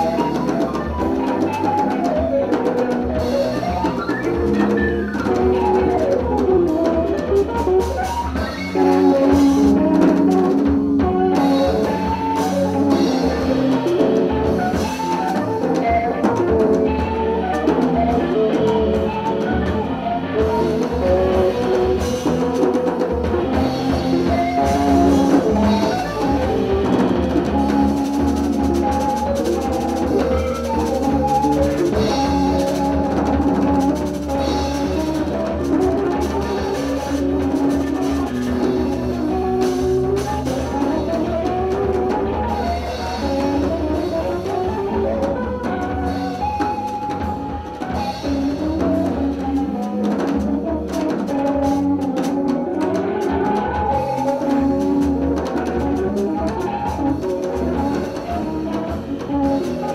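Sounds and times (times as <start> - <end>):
bass notes: 0.0 - 59.9
drum kit strokes: 0.0 - 59.9
keyboard playing jazz lines: 0.0 - 59.9.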